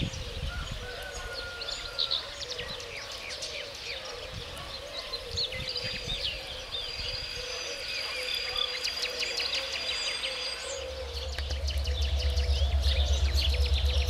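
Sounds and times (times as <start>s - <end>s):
small birds chirping: 0.0s - 14.0s
steady low hum: 5.3s - 14.0s
thin high whine: 5.7s - 14.0s.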